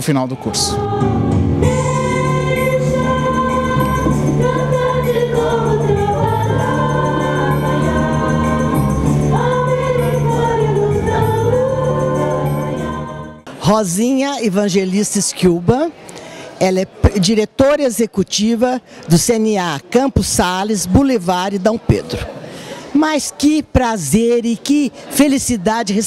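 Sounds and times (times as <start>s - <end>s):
low chords: 0.0s - 13.6s
choir singing held notes: 0.2s - 13.6s.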